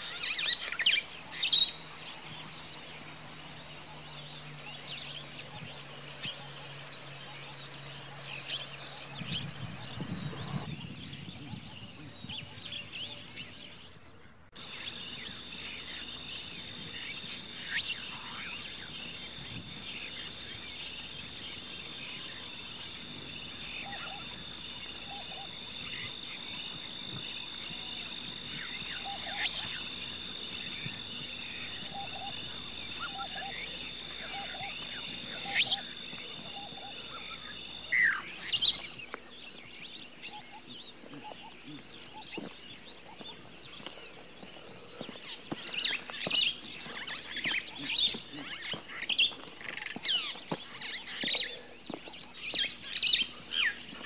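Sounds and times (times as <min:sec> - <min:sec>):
bird chirps: 0:00.0 - 0:54.0
high fast-pulsing insect trill: 0:14.6 - 0:39.0.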